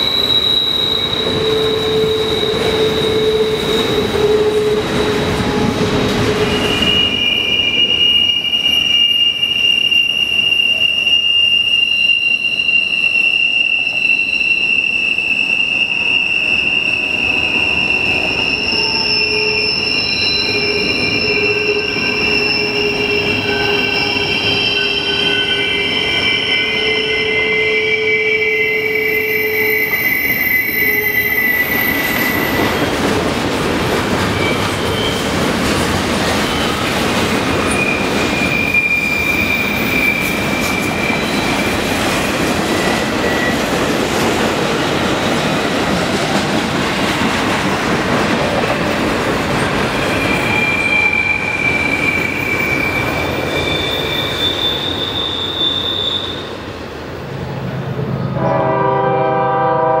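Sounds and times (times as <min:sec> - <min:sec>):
wheel flange squeals: 0:00.0 - 0:33.0, 0:34.2 - 0:35.5, 0:36.2 - 0:43.8, 0:49.8 - 0:56.5
freight train rolling past: 0:00.0 - 1:00.0
locomotive horn chord: 0:58.3 - 1:00.0.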